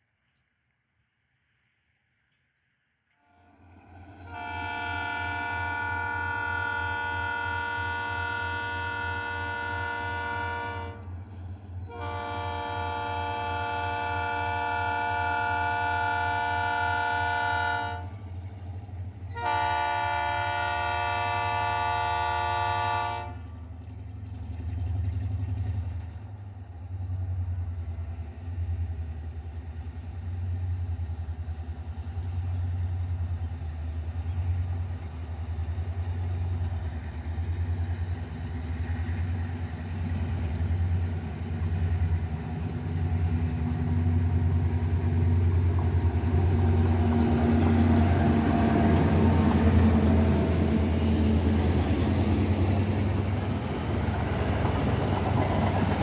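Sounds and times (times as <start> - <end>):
locomotive air horn blast: 3.2 - 11.2, 11.9 - 18.2, 19.3 - 23.5.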